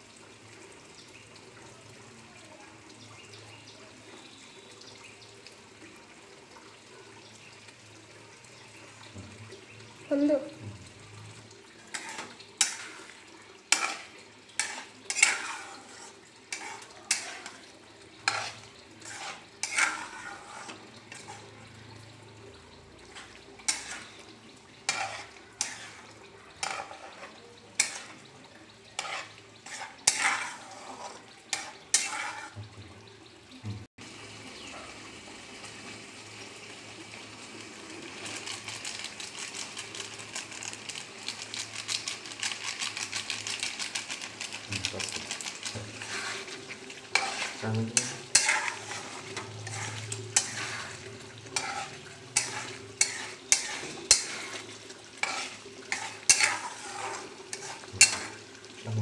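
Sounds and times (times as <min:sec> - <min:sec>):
curry sizzling in a pan: 0:00.0 - 0:59.0
metal spatula scraping a pan: 0:11.8 - 0:22.1, 0:23.0 - 0:32.8, 0:41.7 - 0:58.8.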